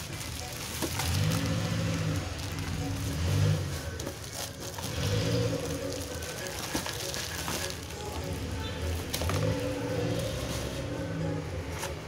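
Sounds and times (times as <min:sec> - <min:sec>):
plastic bowls rustling and clicking: 0:00.0 - 0:12.0.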